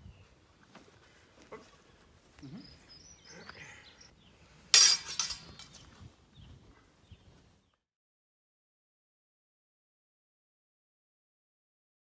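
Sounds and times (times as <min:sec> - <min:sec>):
swords clashing: 0:04.8 - 0:05.7
rustling and scraping: 0:04.8 - 0:06.1.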